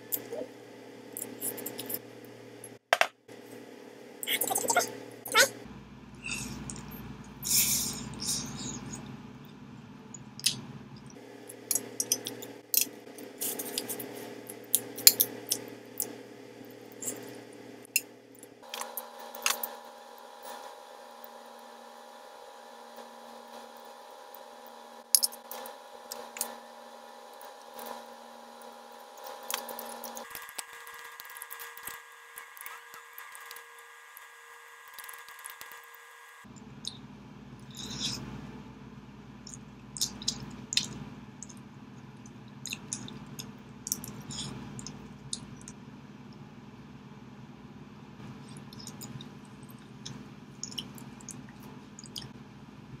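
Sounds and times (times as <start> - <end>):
faint hum: 0.0 - 53.0
person chewing and smacking: 39.5 - 45.8, 48.5 - 52.3.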